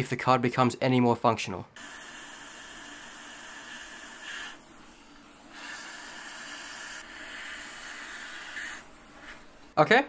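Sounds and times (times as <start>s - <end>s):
hot air blower hissing: 1.8s - 9.8s.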